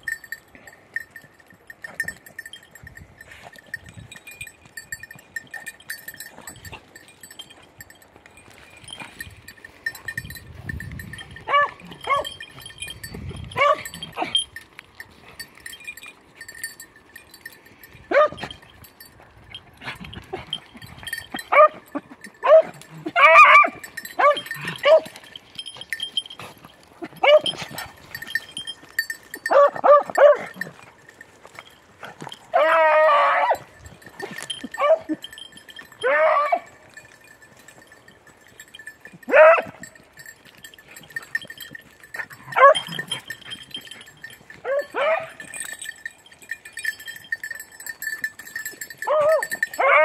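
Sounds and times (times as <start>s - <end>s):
dogs yelping and barking: 11.1s - 14.5s, 18.1s - 18.7s, 19.6s - 31.0s, 32.0s - 37.0s, 38.6s - 50.0s
dog baying: 11.4s - 12.7s, 19.8s - 25.2s, 29.0s - 30.8s, 40.9s - 45.6s, 48.6s - 50.0s.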